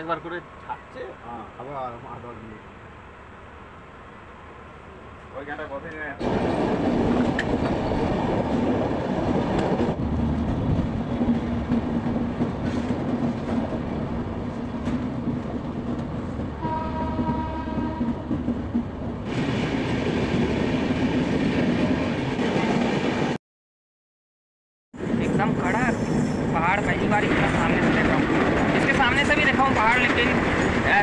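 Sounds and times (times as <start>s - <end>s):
train wheels rumbling on track: 1.9s - 23.4s, 25.0s - 31.0s
train horn: 16.6s - 18.4s.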